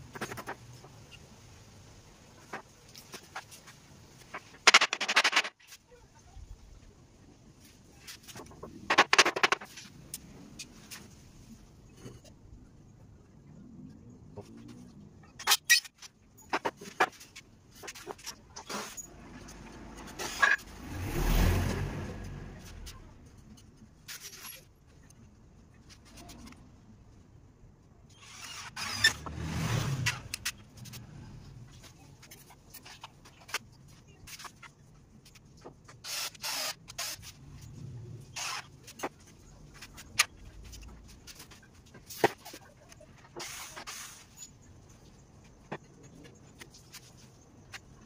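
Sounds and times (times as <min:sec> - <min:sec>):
vehicles passing by: 0:17.7 - 0:24.0, 0:28.6 - 0:34.4, 0:37.2 - 0:42.9.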